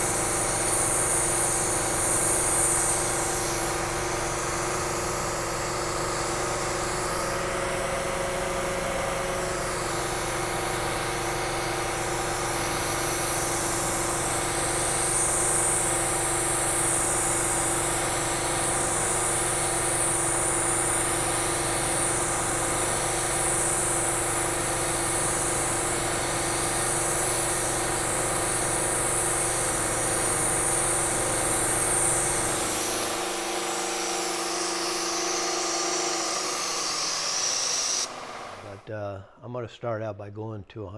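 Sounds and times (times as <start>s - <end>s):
milling machine motor hum: 0.0s - 38.8s
metal cutting hiss: 9.4s - 38.9s.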